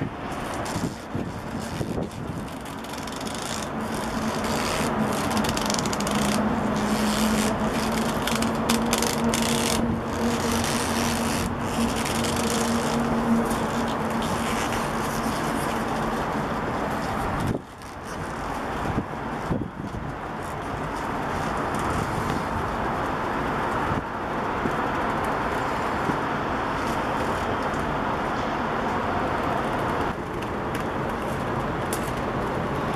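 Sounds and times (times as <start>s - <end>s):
leather rubbing and scraping: 0.0s - 22.9s.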